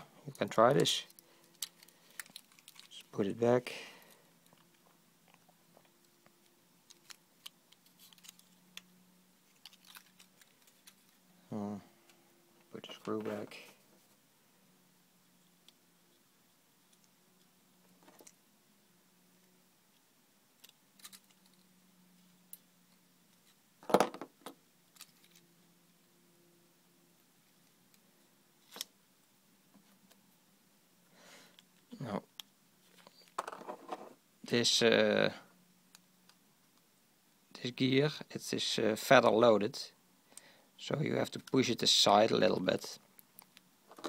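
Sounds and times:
faint low hum: 0.0 - 44.0
clicks of handling plastic parts: 0.4 - 3.0.

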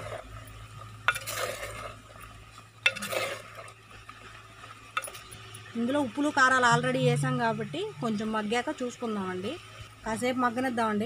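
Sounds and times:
spoon stirring in clay pot: 0.0 - 5.6.

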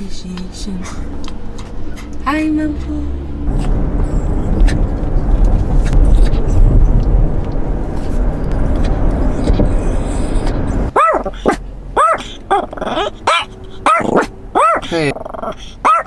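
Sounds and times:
car road noise rumble: 0.0 - 16.0
dog whining: 9.2 - 16.0.

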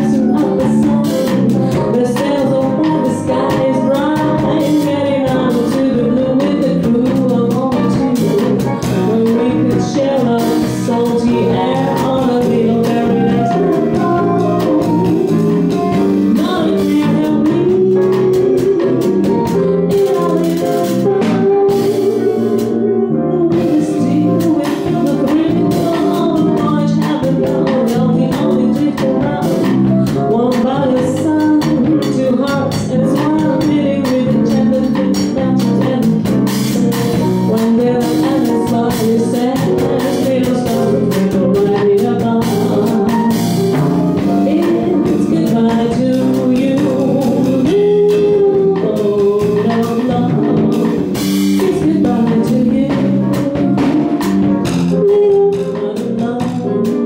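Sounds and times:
jazz band playing: 0.0 - 57.0
woman singing: 0.0 - 57.0.

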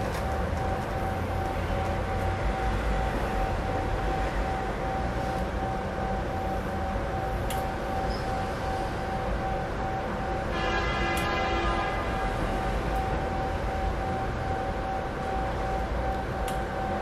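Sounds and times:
high-pitched hum: 0.0 - 17.0.

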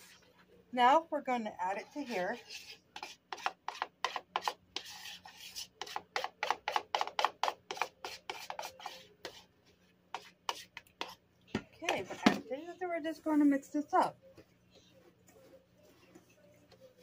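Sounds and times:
utensil scraping chocolate from bowl: 1.7 - 9.5.

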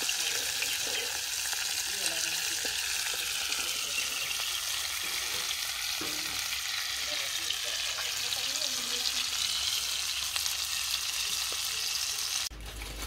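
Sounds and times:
fish frying in bubbling oil: 0.0 - 13.0
metal spatula scraping a pan: 2.6 - 7.0.

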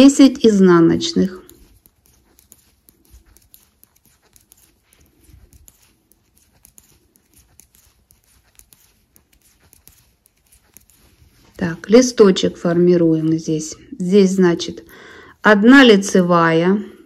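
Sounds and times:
knitting needles clicking: 0.9 - 13.7.

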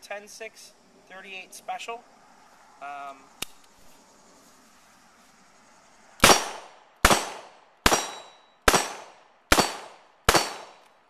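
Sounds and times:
revolver shots with echo: 6.2 - 10.8.

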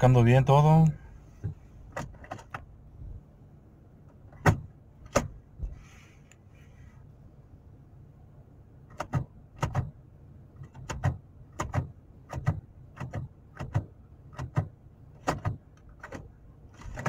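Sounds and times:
car engine idling: 0.0 - 17.0
gear selector lever clicks: 4.1 - 5.4, 8.9 - 10.0, 10.6 - 17.0.

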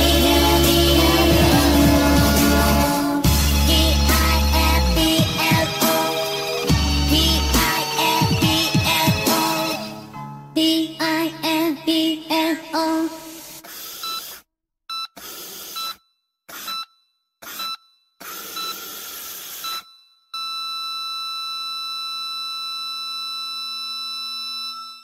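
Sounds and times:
sped-up pop song: 0.0 - 13.6
long held electronic tone: 19.7 - 25.0.

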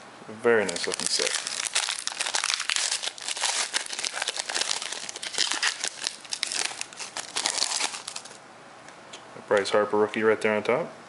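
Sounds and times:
wrapper crinkling: 0.6 - 8.4.

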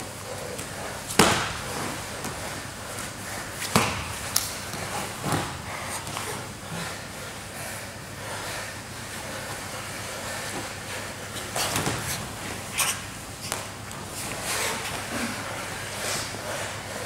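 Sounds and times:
room noise hiss: 0.0 - 17.0
bodies scuffling on mat: 0.2 - 7.0, 10.5 - 15.7.

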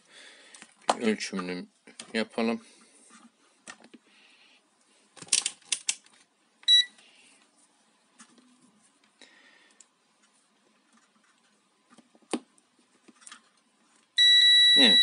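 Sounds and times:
multimeter continuity beep: 6.6 - 7.0, 14.2 - 15.0.

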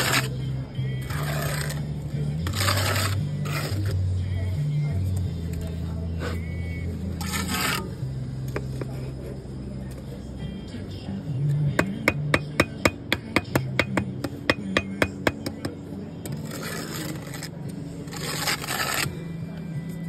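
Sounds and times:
trowel scraping mortar: 0.0 - 0.4, 1.0 - 4.0, 7.2 - 7.9, 11.8 - 19.2
trowel tapping brick: 11.7 - 16.4.

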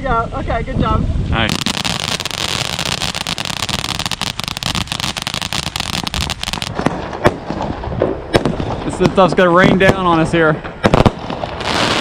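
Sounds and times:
fountain firework hissing and crackling: 1.3 - 7.2, 8.6 - 12.0
sharp firework pops: 1.5 - 12.0.

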